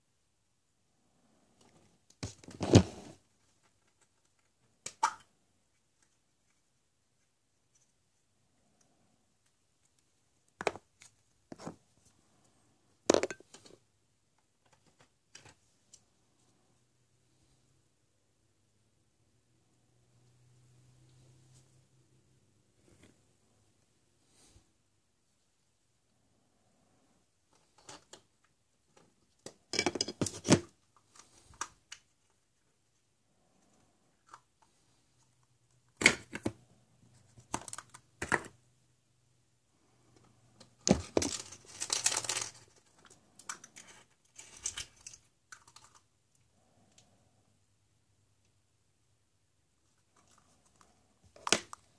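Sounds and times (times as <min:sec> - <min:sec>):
plastic eggs clattering: 0:40.8 - 0:46.1.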